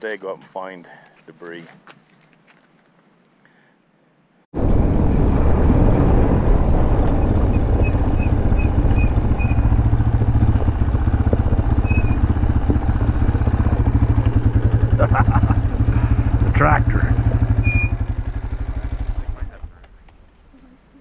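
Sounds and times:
off-road vehicle engine running: 4.6s - 20.3s.

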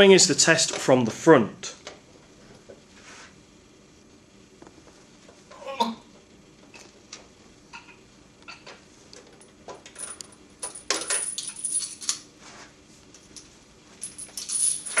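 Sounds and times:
metal chain clinking and rattling: 9.4s - 12.2s, 13.2s - 15.0s.

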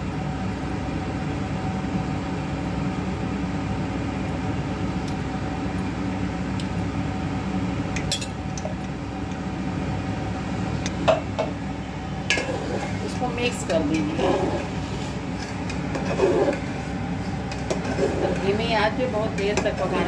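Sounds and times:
low kitchen hum: 0.0s - 20.0s
nuts scraped into pot: 12.3s - 18.6s.

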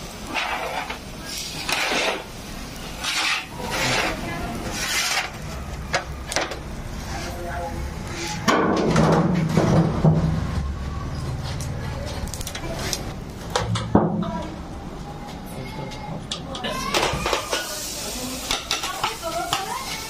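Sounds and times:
metal skewers scraping grill rails: 0.2s - 10.2s.

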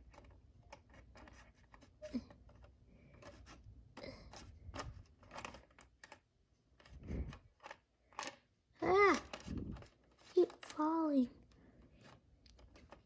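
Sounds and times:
plastic toy pieces clicking: 4.3s - 10.8s.

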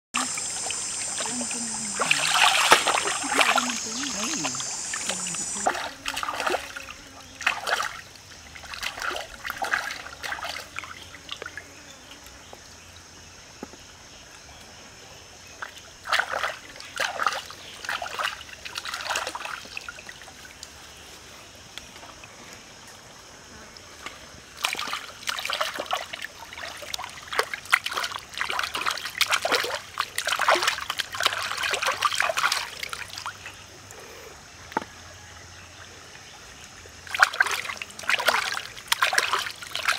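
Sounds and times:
high steady buzz: 0.2s - 6.9s
short water splashes: 0.2s - 11.4s, 15.6s - 20.6s, 24.6s - 33.5s, 37.0s - 39.9s
shallow stream trickling: 0.2s - 39.9s.

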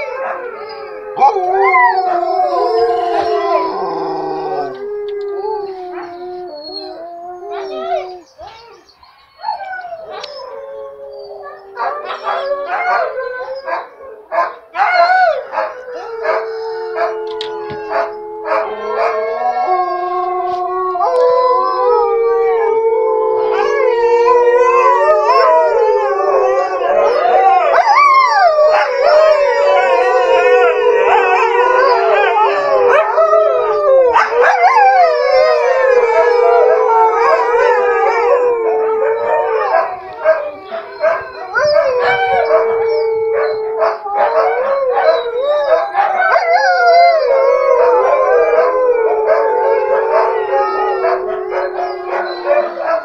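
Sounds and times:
huskies howling in chorus: 0.0s - 53.0s.

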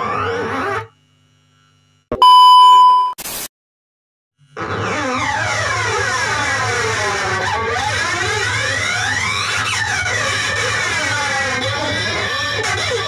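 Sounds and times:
distorted electric guitar sliding pitches: 4.5s - 13.0s.

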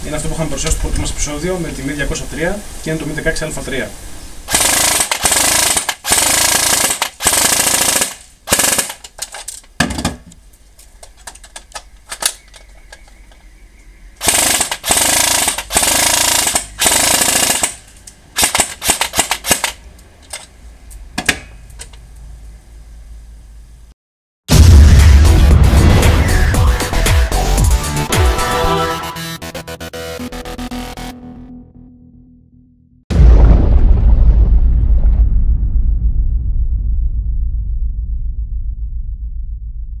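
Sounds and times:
airsoft gun firing full-auto bursts: 4.5s - 9.0s, 14.2s - 17.8s, 18.4s - 19.8s.

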